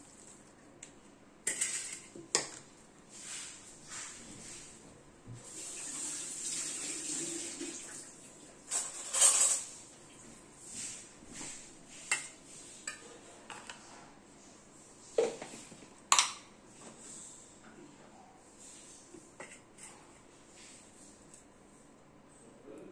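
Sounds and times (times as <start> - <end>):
steel kitchenware clinking: 1.4 - 2.6, 8.7 - 9.8
water running from tap: 5.4 - 8.6.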